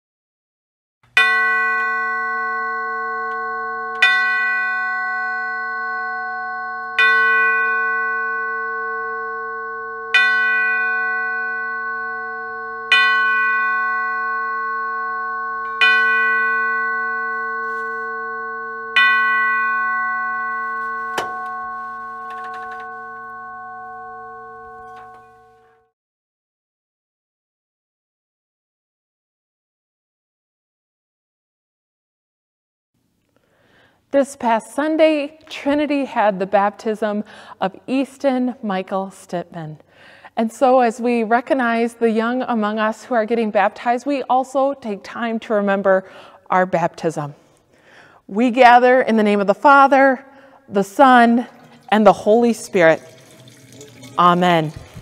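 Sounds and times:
church bell tolling: 0:01.2 - 0:25.9.

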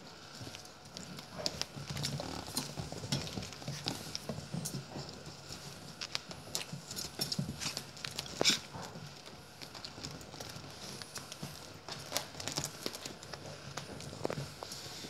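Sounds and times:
puppy paws scrabbling on blanket: 0:00.1 - 0:15.0.

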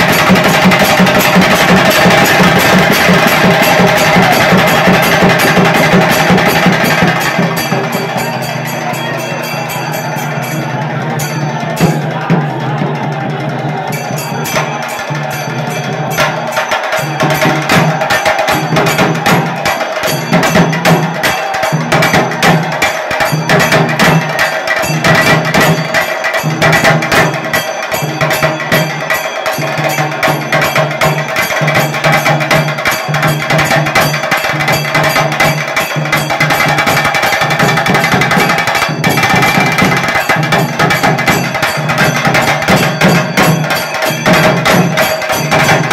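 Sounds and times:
drums beating: 0:00.0 - 0:45.9
held higher tone: 0:00.1 - 0:22.4.

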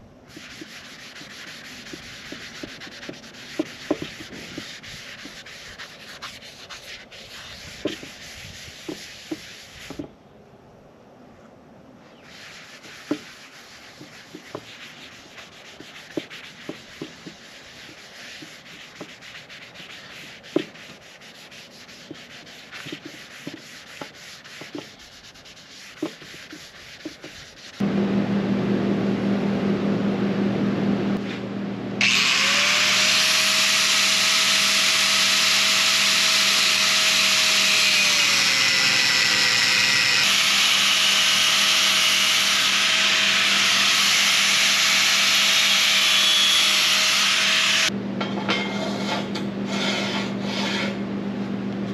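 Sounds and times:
cloth rubbing on wooden board: 0:00.3 - 0:10.1, 0:12.2 - 0:27.8
angle grinder cutting steel: 0:32.0 - 0:47.9.

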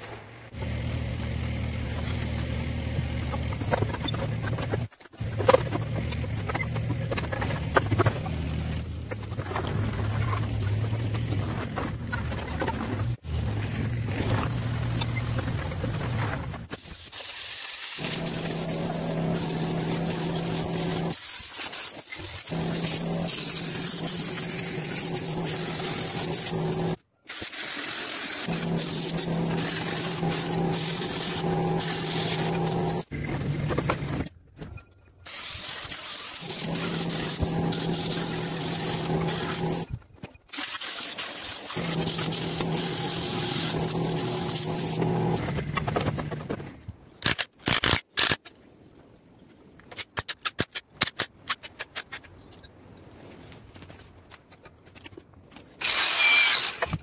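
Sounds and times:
cutting torch hissing: 0:16.8 - 0:33.1, 0:35.3 - 0:39.9, 0:40.6 - 0:45.4.

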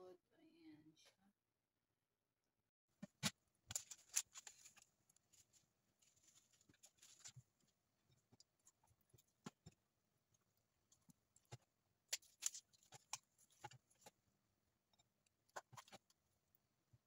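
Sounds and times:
clicks and knocks handling chicken: 0:03.0 - 0:17.0
crinkly rustling: 0:03.6 - 0:09.6, 0:10.9 - 0:14.3.

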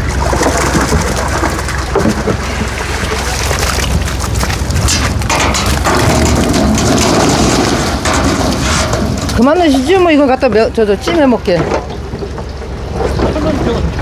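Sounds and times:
fish splashing: 0:00.0 - 0:10.0
water rushing and splashing: 0:00.0 - 0:14.0.

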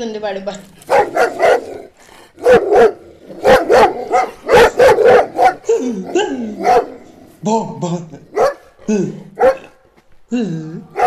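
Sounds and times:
man imitating dog barks: 0:02.4 - 0:11.0.

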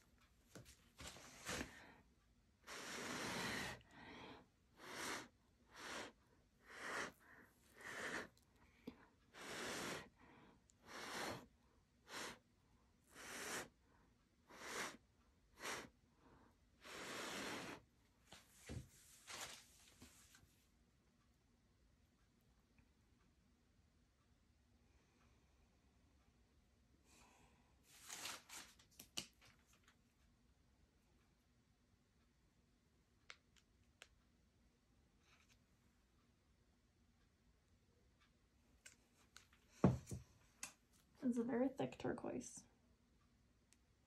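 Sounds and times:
person blowing puffs of breath: 0:02.6 - 0:08.3, 0:09.3 - 0:12.4, 0:13.1 - 0:13.8, 0:14.5 - 0:15.0, 0:15.6 - 0:16.0, 0:16.8 - 0:17.8.

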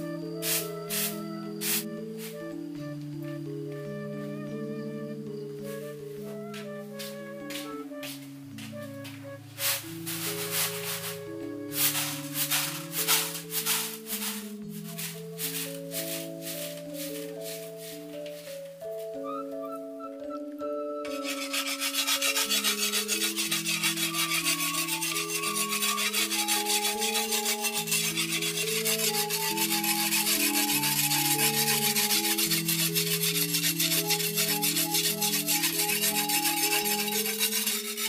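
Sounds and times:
instrumental music: 0:00.0 - 0:38.0
rasping scrape: 0:00.4 - 0:02.5, 0:09.6 - 0:18.5, 0:21.1 - 0:38.0.

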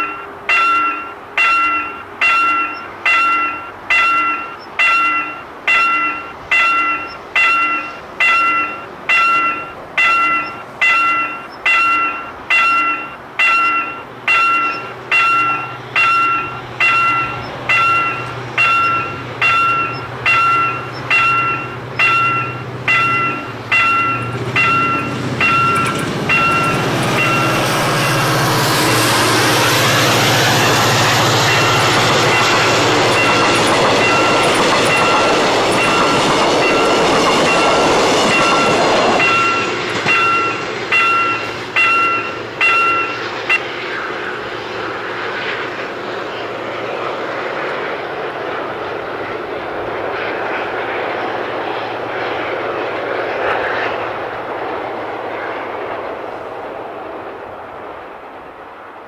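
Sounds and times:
level crossing bell dinging: 0:00.0 - 0:28.1, 0:31.4 - 0:43.6
train passing with rushing rumble: 0:00.0 - 0:59.0.

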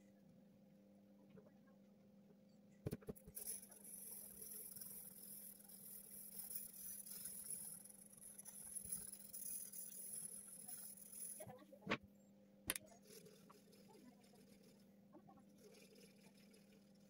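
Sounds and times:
pencil scratching on paper: 0:03.3 - 0:11.5.

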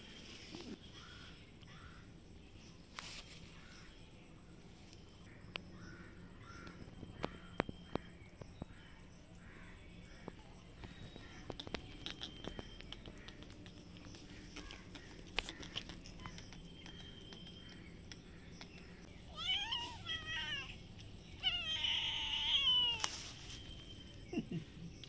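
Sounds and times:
cat meowing: 0:19.3 - 0:20.8.

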